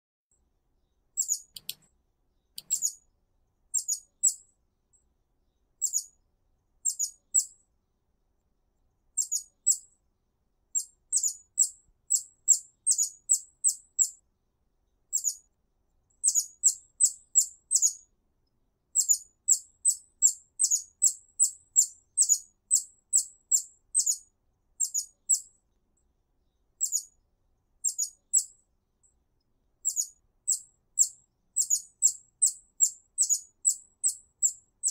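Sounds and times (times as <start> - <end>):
hummingbird chip calls: 1.2 - 1.8, 2.6 - 3.0, 3.8 - 4.4, 29.9 - 34.9.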